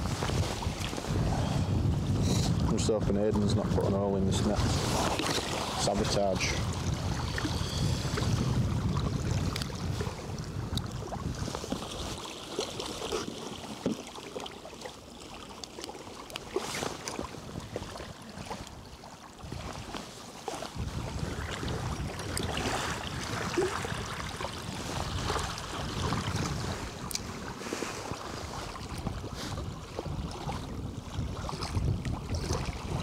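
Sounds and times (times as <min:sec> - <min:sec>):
wind rumbling on microphone: 0:00.0 - 0:14.0, 0:16.3 - 0:33.0
small waves lapping on stones: 0:04.4 - 0:08.4, 0:09.3 - 0:33.0.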